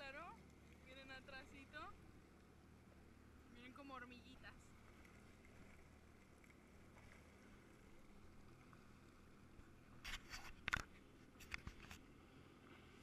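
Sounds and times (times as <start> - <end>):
camera housing clicks and knocks: 10.1 - 12.0.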